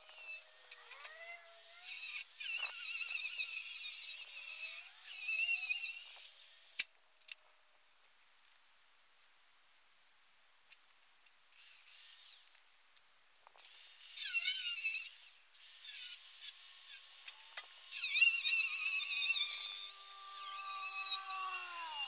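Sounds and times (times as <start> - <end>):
angle grinder screeching on steel: 0.0 - 6.3, 14.0 - 22.0
grinder motor whine: 16.2 - 22.0.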